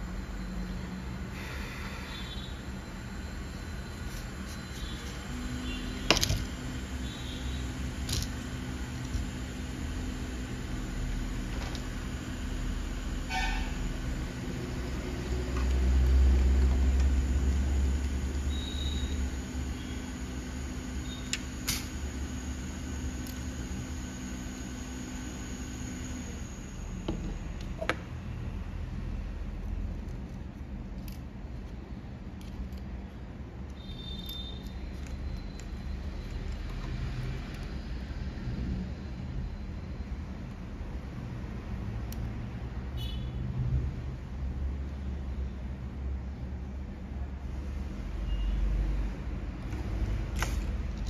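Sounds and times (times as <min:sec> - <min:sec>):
hot air blower humming: 0:00.0 - 0:28.2.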